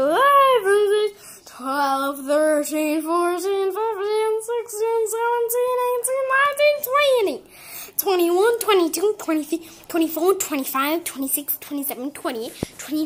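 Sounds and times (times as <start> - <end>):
girl singing high notes: 0.0 - 13.0.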